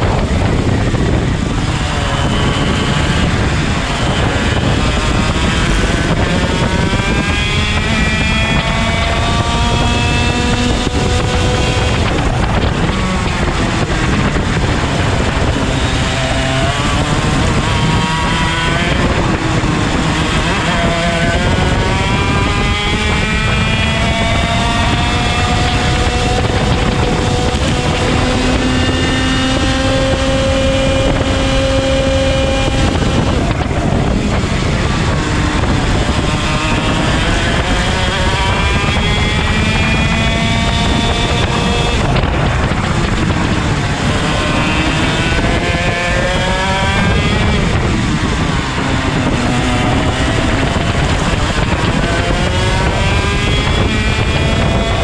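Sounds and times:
kart engine racing: 0.0 - 55.0.

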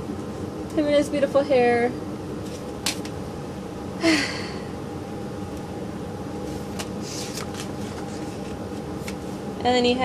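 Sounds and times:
steady low hum: 0.0 - 10.0
woman's breathy sigh: 4.0 - 4.7.

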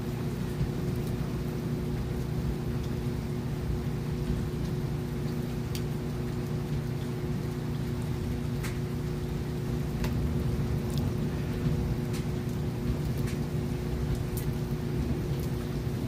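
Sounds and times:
low steady hum: 0.0 - 16.0
steady rain: 0.0 - 16.0
sharp drips: 4.0 - 16.0.

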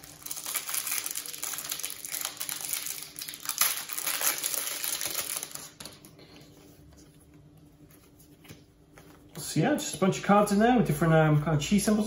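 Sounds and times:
plastic wrapper crinkling: 0.0 - 6.2.

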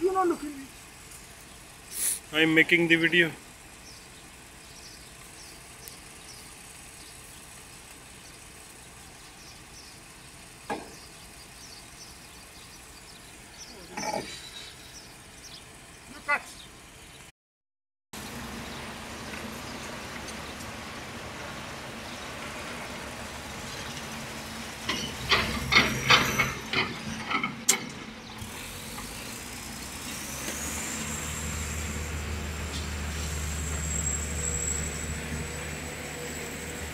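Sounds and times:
sharp knocks and clatters: 10.7 - 11.0, 24.8 - 28.2.

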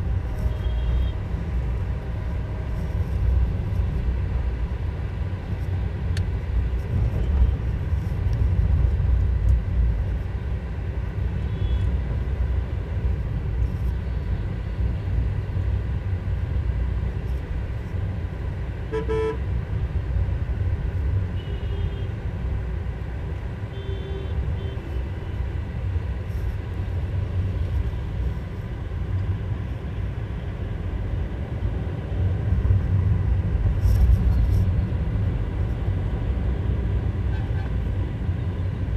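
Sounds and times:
car road and engine rumble: 0.0 - 38.9
vehicle horn toots: 18.9 - 19.4.

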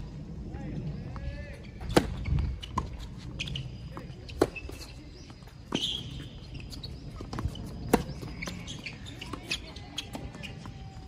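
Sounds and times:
ball bouncing: 7.0 - 11.0.

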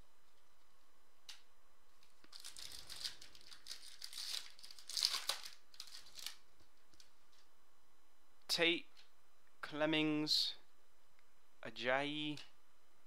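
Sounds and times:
foil wrapper tearing and crinkling: 2.2 - 7.1.

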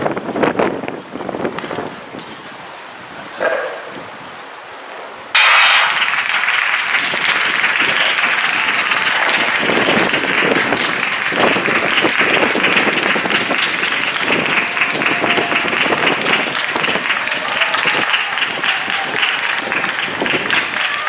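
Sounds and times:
spectators clapping and cheering: 5.4 - 21.0.

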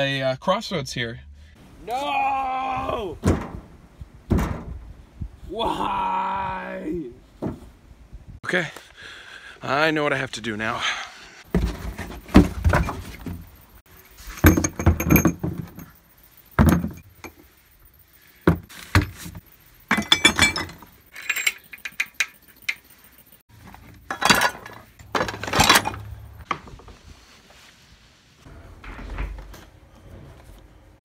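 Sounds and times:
metal engine parts clattering: 11.5 - 26.5.

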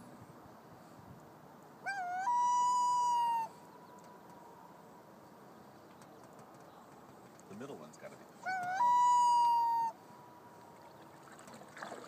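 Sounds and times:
loon call whistle wailing: 1.9 - 3.5, 8.5 - 10.0.

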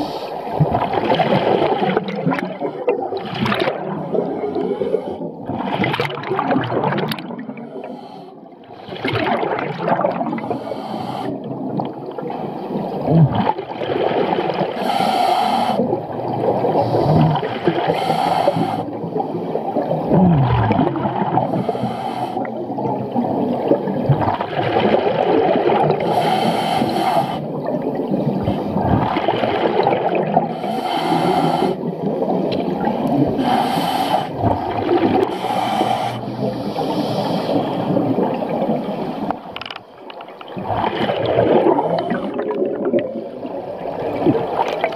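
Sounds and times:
exhaled bubbles rushing underwater: 0.0 - 44.9.

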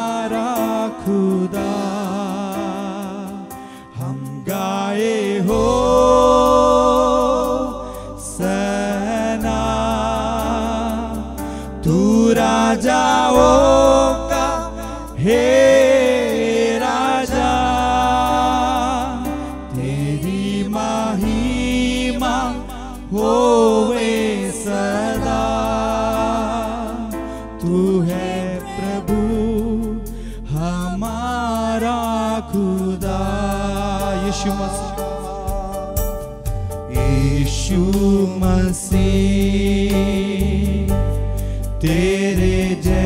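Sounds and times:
man and woman singing: 0.0 - 40.9, 41.8 - 43.0
sustained keyboard chords: 32.8 - 43.0.

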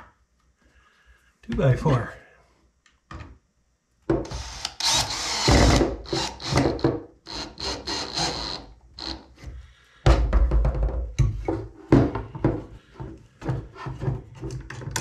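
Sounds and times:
power drill driving screws: 4.2 - 9.2.

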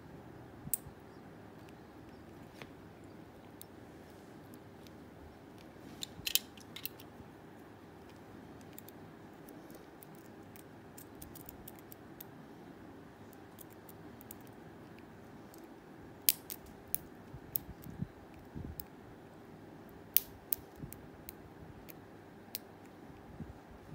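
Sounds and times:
lock pick metallic clicks: 6.0 - 7.1, 16.3 - 17.9.

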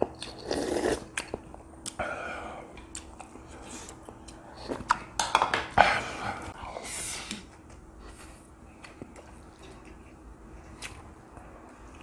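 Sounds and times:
chewing: 8.8 - 12.0.

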